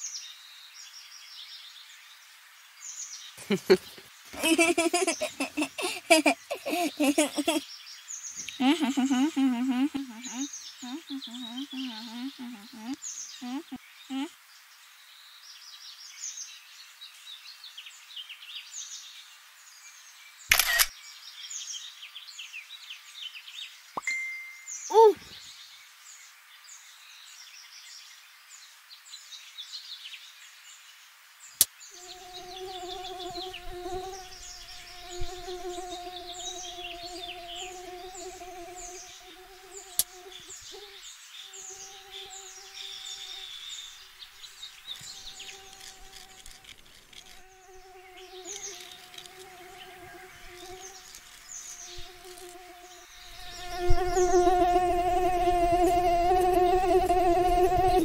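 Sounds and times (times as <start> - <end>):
bird and insect chirps: 0.0 - 58.0
flying insect buzzing: 3.4 - 7.6, 8.4 - 14.3, 32.0 - 58.0
sharp clicks: 20.5 - 20.9.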